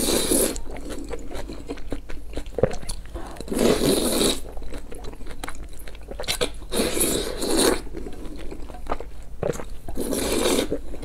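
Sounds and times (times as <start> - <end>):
wet chewing clicks: 0.5 - 11.0
noodles slurping: 2.7 - 4.8, 6.1 - 11.0.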